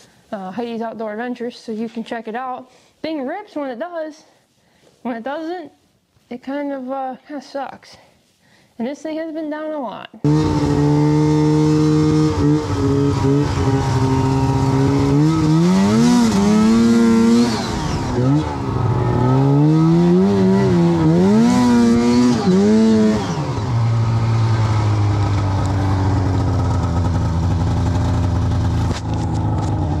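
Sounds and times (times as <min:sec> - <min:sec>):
snowmobile engine revving: 0:10.2 - 0:30.0.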